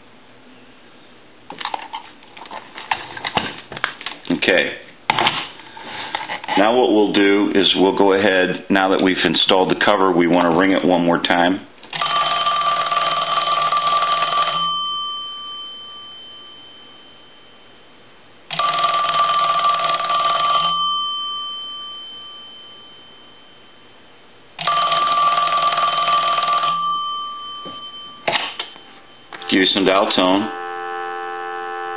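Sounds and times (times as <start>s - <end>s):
telephone bell ringing: 12.0s - 17.7s, 18.5s - 23.9s, 24.6s - 31.9s.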